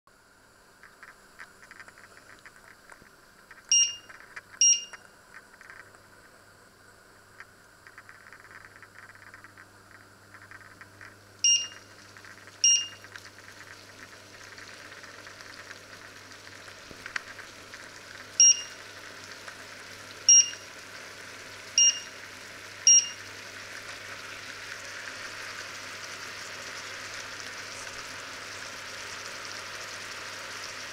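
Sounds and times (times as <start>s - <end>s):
vegetables simmering and sizzling: 0.1s - 30.9s
touch panel beeps: 3.7s - 5.0s, 11.4s - 11.8s, 12.6s - 13.0s, 18.4s - 18.8s, 20.3s - 20.6s, 21.8s - 22.1s, 22.9s - 23.2s.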